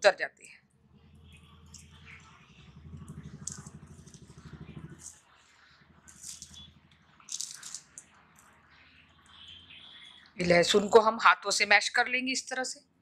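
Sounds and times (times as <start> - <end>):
low pulsing hum: 0.6 - 10.4.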